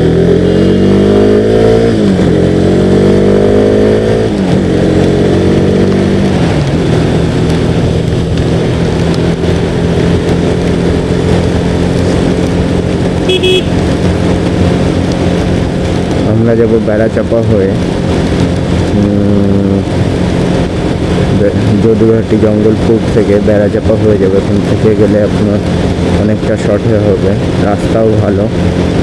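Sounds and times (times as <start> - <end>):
motorcycle engine accelerating: 0.0 - 29.0
wind and wet-road noise: 0.0 - 29.0
horn toot: 13.2 - 13.8.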